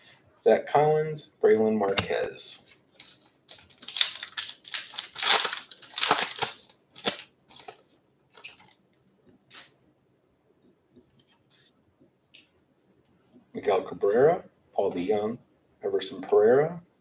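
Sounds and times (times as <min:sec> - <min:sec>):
cards rustling: 0:01.9 - 0:08.8
wrapper tearing and crinkling: 0:02.6 - 0:08.8.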